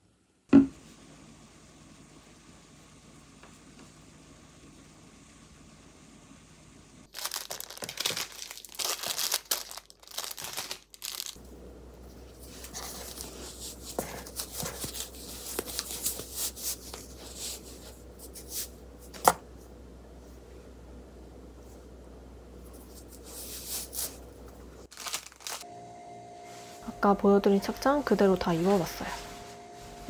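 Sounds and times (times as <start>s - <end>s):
packaging crinkling and rustling: 7.1s - 11.4s, 24.9s - 25.7s
packaging tearing: 7.1s - 11.4s, 24.9s - 25.6s.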